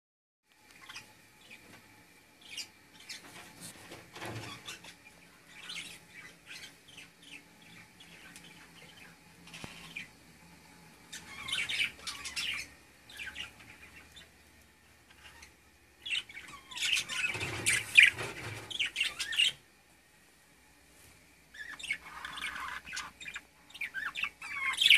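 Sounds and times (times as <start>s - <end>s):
budgerigars chirping: 2.4s - 3.4s, 4.3s - 10.2s, 11.1s - 14.4s, 15.1s - 19.6s, 21.5s - 24.9s.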